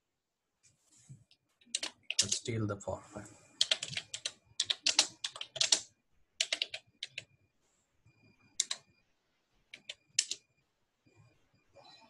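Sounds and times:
computer keyboard keystrokes: 1.7 - 2.5, 3.6 - 7.3, 8.6 - 8.8, 9.7 - 10.4.

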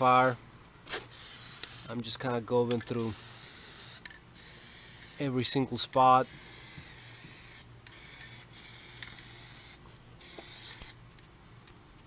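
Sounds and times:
aerosol can spraying: 6.2 - 11.0.

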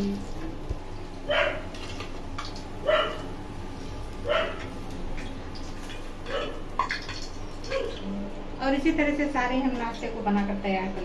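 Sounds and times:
dog barking: 1.3 - 1.6, 2.8 - 3.3, 4.2 - 4.7, 6.3 - 6.6
oil sizzling in a pan: 1.7 - 8.0.

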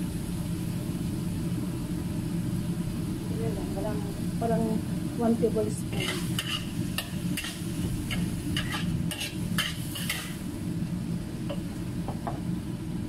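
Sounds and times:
food sizzling: 0.0 - 13.0
metal spatula scraping wok: 5.8 - 10.4.

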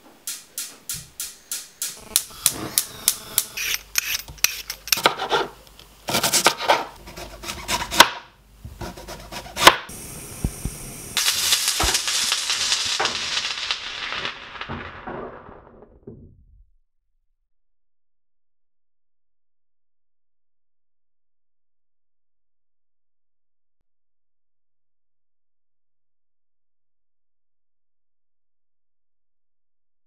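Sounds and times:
knife chopping vegetables on board: 6.1 - 9.9
food sizzling in a frying pan: 9.9 - 15.0.

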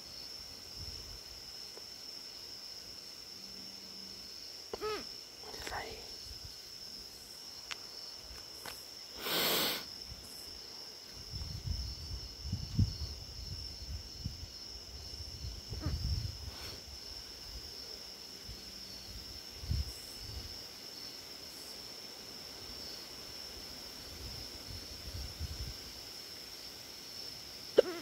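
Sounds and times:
night insects trilling: 0.0 - 28.0
burst of hiss: 9.1 - 10.0.

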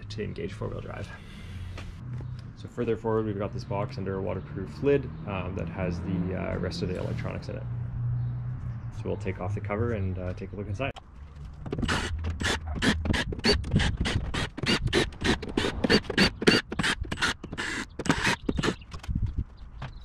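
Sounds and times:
drill-driver removing screws: 11.7 - 18.8.

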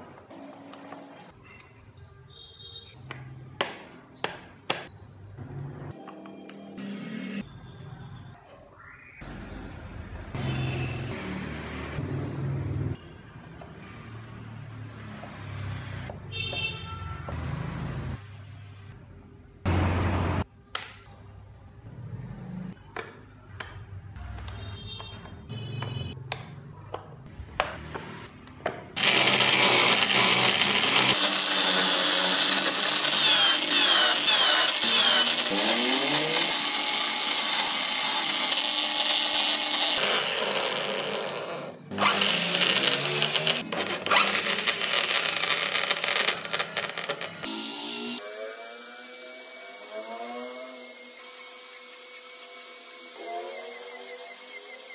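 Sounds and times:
power tool grinding into wood: 29.0 - 54.9.

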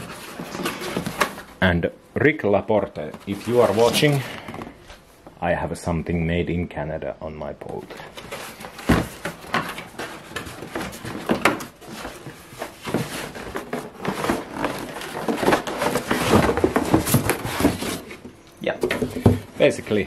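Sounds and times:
cardboard flaps scraping and rustling: 0.0 - 1.6, 3.1 - 4.9, 7.7 - 20.0.

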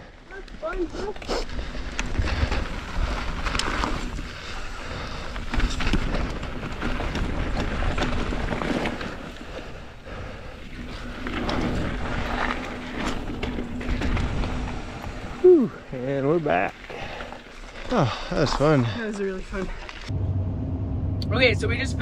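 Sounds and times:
tyres rumbling on dirt: 0.5 - 20.2
bike knocks and rattles: 5.0 - 9.4, 10.9 - 15.4
steady low hum: 20.1 - 22.0.

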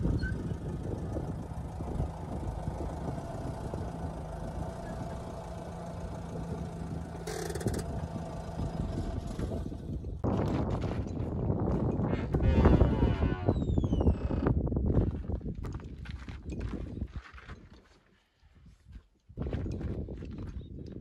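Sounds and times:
car engine idling: 0.0 - 10.2.

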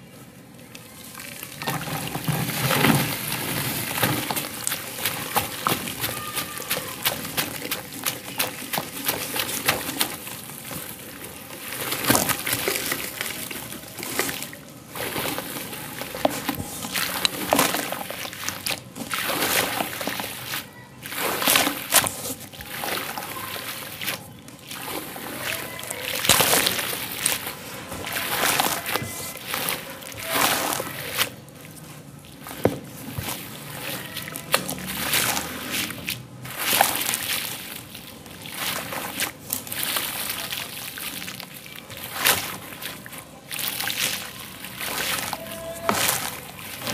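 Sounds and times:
sand pouring into water: 1.4 - 31.4.

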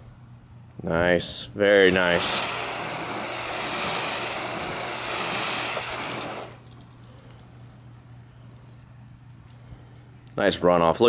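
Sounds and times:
water spray hissing: 1.6 - 7.6
water dripping and trickling: 2.4 - 10.4.

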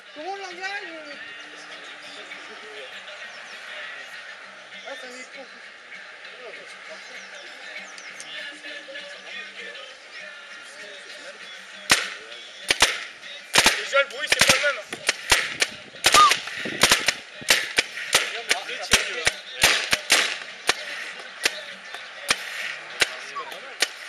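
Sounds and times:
paintball markers firing: 11.9 - 24.0.

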